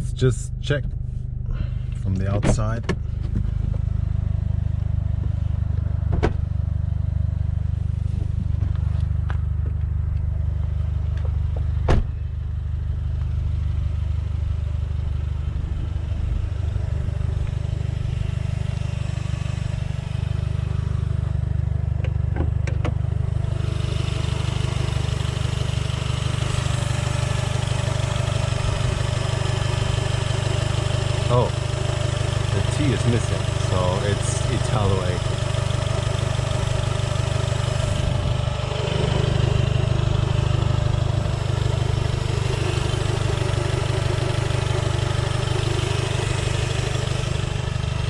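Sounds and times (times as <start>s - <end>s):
car engine idling: 0.0s - 48.0s
sharp clicks and knocks: 22.0s - 23.0s.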